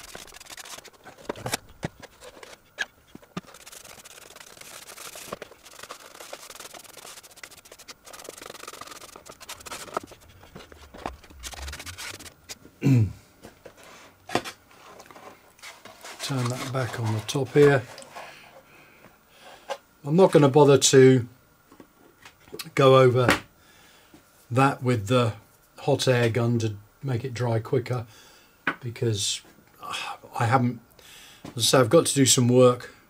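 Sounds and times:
paintbrush brushing on wood: 0:00.0 - 0:01.4, 0:02.0 - 0:12.6.

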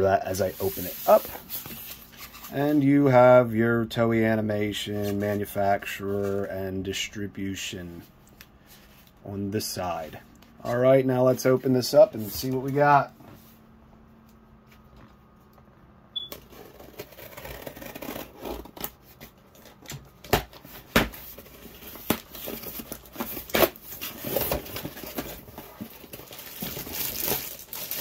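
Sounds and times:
tape tearing: 0:16.3 - 0:28.0
packing material rustling: 0:16.4 - 0:28.0.

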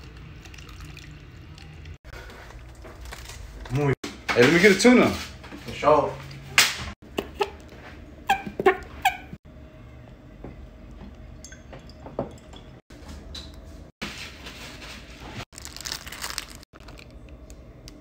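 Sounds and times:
dry noodle block crunching: 0:15.5 - 0:17.4
plastic wrapper crinkling: 0:15.5 - 0:18.0.

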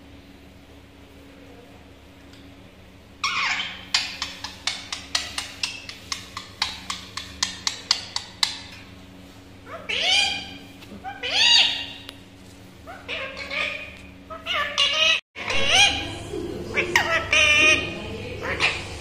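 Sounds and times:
parakeet calling: 0:03.2 - 0:08.9, 0:09.6 - 0:12.2, 0:12.8 - 0:19.0.

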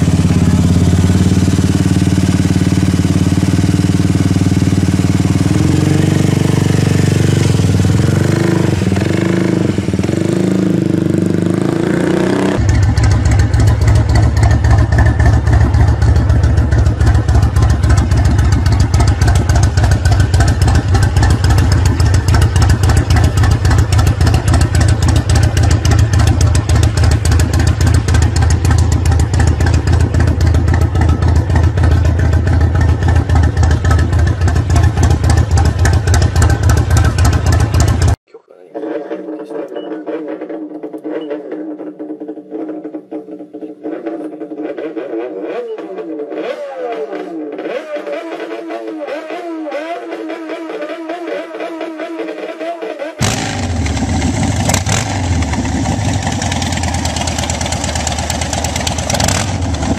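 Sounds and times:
motorcycle engine idling: 0:00.0 - 0:38.2, 0:53.2 - 0:59.9
scooter engine running: 0:00.0 - 0:38.2, 0:39.9 - 0:59.9.

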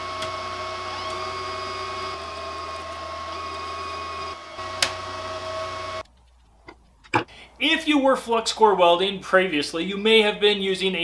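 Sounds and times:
welder wire-feed motor running: 0:00.0 - 0:06.0.

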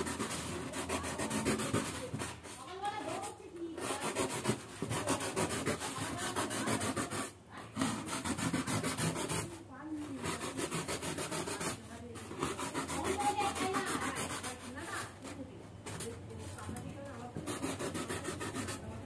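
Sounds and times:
blade cutting polystyrene: 0:00.0 - 0:19.0.

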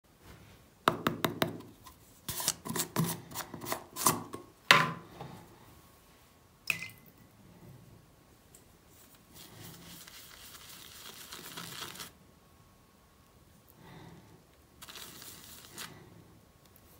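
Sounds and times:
shaving brush swishing in cream: 0:09.0 - 0:12.2, 0:14.8 - 0:16.0.

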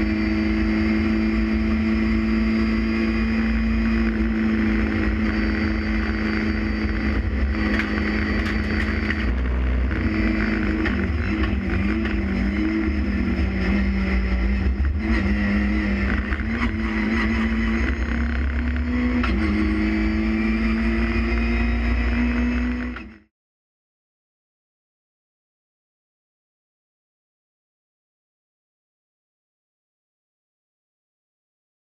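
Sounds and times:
race car engine: 0:00.0 - 0:23.3
wind and road noise: 0:00.0 - 0:23.3.

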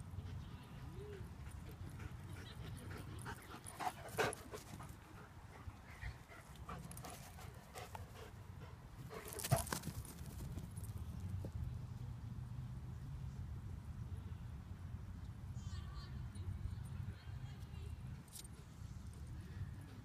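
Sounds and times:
dog panting: 0:01.4 - 0:09.7
dog running on grass: 0:09.0 - 0:11.0.

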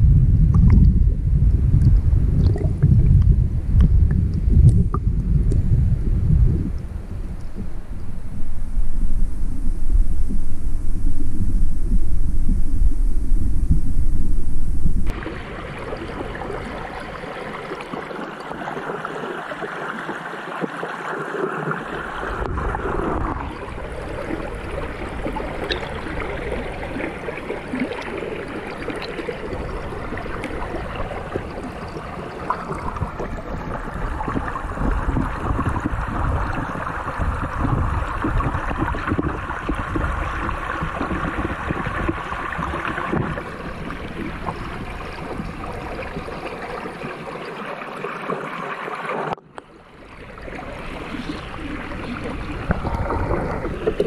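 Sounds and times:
low rumble: 0:00.0 - 0:17.6, 0:22.1 - 0:46.4
stream water heard underwater: 0:00.0 - 0:54.0.

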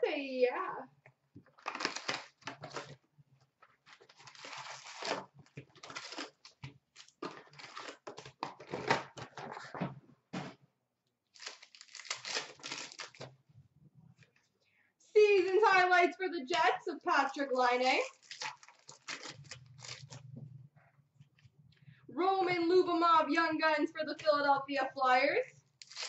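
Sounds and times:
foil wrappers crinkling: 0:01.5 - 0:03.0, 0:03.7 - 0:09.7, 0:11.3 - 0:13.3, 0:17.6 - 0:20.3, 0:25.8 - 0:26.0
foil packs tearing open: 0:01.6 - 0:03.0, 0:03.9 - 0:09.6, 0:11.4 - 0:13.3, 0:18.0 - 0:20.2, 0:25.8 - 0:26.0.

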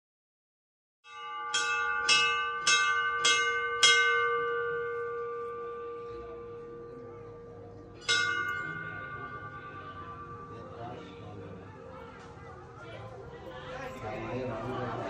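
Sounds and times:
brass bell struck and ringing: 0:01.1 - 0:11.3.

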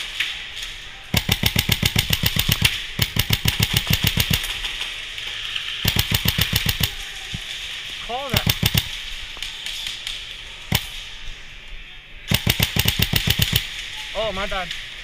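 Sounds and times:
airsoft rifle firing full auto: 0:01.1 - 0:04.7, 0:05.8 - 0:07.0, 0:08.3 - 0:09.0, 0:12.3 - 0:13.8.

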